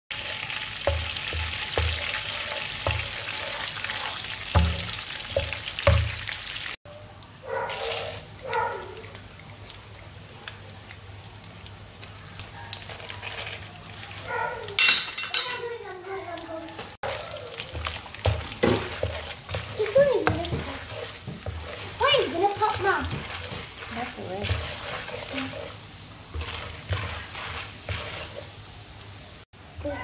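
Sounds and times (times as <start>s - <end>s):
butter sizzling in frying pan: 0.1s - 6.8s, 9.1s - 30.0s
wooden spatula knocking pan: 0.2s - 6.3s, 17.2s - 25.7s.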